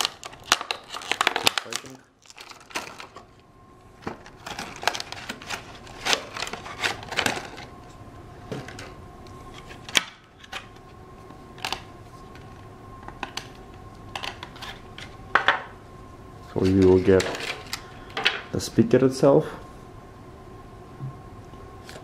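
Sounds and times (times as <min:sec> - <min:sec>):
plastic packaging clicks and crinkles: 0:00.0 - 0:03.4, 0:04.0 - 0:07.7, 0:11.6 - 0:15.2
faint steady hum: 0:00.0 - 0:22.0.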